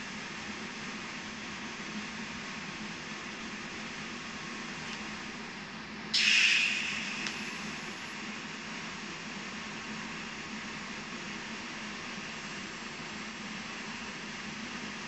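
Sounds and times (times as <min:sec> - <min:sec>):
welding arc hissing: 0:06.2 - 0:07.8.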